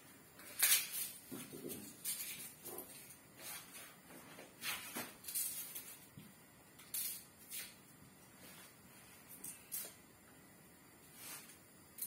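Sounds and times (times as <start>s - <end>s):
faint rustles and scrapes: 1.0s - 6.1s, 7.5s - 10.0s, 11.0s - 11.7s.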